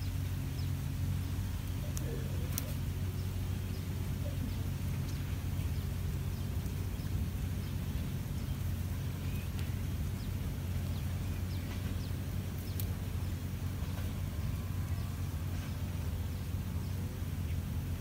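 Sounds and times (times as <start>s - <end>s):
low mechanical hum: 0.0s - 18.0s.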